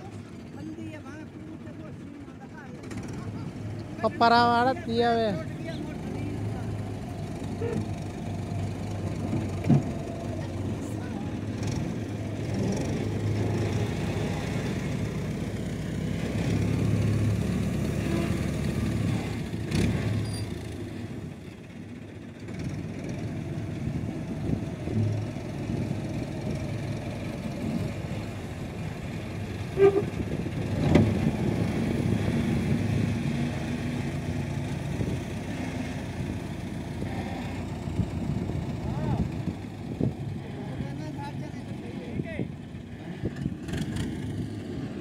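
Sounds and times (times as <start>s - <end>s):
tractor engine under load: 0.0s - 45.0s.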